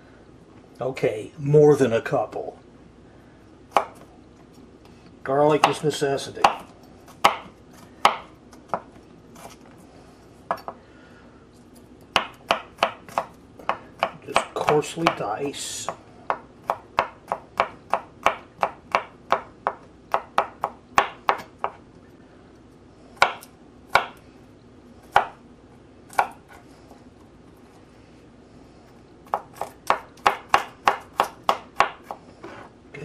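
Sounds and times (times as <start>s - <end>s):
knife chopping on plastic board: 5.5s - 9.0s, 12.1s - 15.2s, 15.9s - 21.8s, 23.2s - 24.2s, 26.1s - 26.6s, 29.3s - 32.2s.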